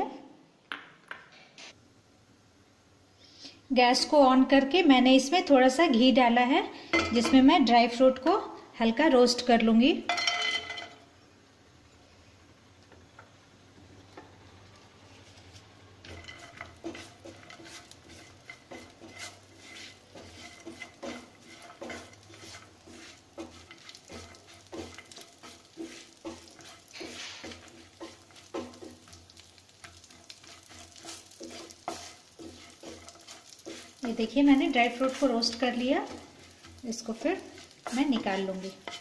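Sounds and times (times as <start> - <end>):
light frying sizzle: 1.7 - 39.0
spatula scraping frying pan: 15.1 - 39.0.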